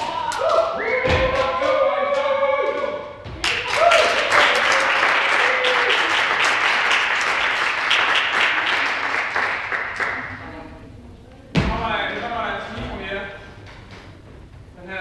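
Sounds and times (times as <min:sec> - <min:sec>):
people cheering: 0:00.0 - 0:10.4
crowd applause in hall: 0:03.4 - 0:10.5.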